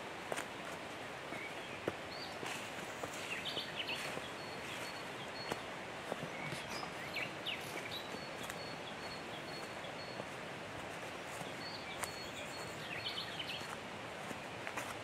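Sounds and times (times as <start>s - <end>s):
steady background hiss: 0.0s - 15.0s
bird chirps and calls: 11.3s - 13.8s.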